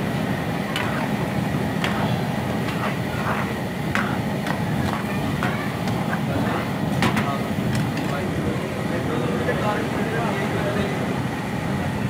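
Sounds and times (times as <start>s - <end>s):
ladle clinking and scraping pan: 0.7s - 1.2s, 1.8s - 6.4s.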